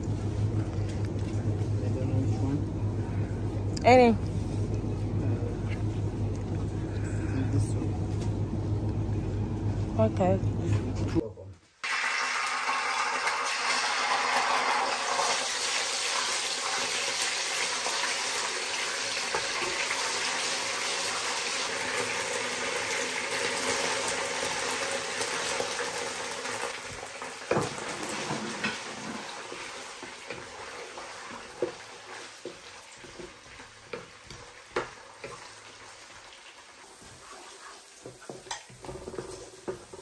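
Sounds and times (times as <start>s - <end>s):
onions sizzling in hot oil: 11.8s - 40.0s
wooden spoon knocking on pan: 32.5s - 35.4s.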